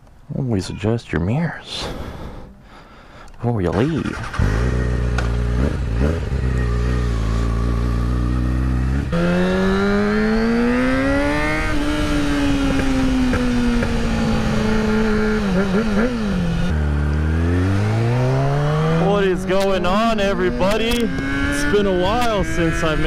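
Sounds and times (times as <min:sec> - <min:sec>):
motorcycle engine: 0:03.7 - 0:23.0.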